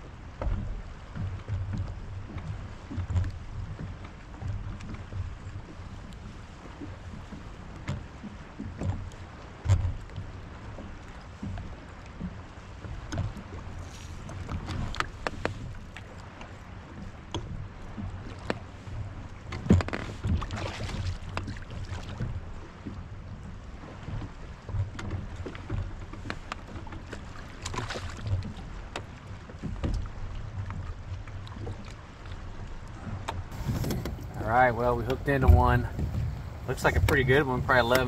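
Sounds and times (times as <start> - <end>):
water moving around kayak: 0.0 - 38.0
wind rumbling on microphone: 0.0 - 38.0
gear knocking against hull: 33.5 - 38.0.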